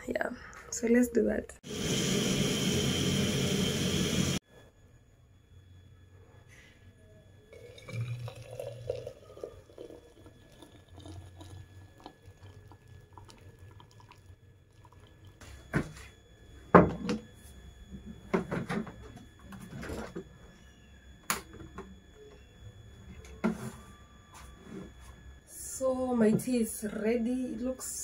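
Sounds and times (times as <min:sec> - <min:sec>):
tea pouring into a cup: 0:07.5 - 0:15.4.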